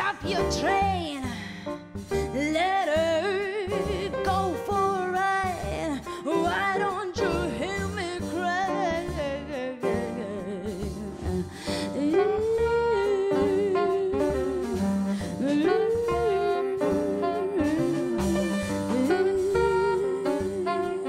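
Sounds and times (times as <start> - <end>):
woman singing blues: 0.0 - 1.5, 2.2 - 21.0
drums: 0.0 - 21.0
piano: 0.0 - 21.0
upright double bass: 0.0 - 21.0.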